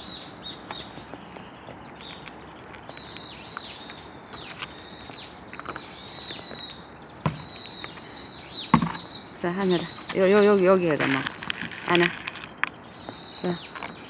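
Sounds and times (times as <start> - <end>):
small birds chirping: 0.0 - 14.0
cat crunching dry kibble: 11.2 - 12.7.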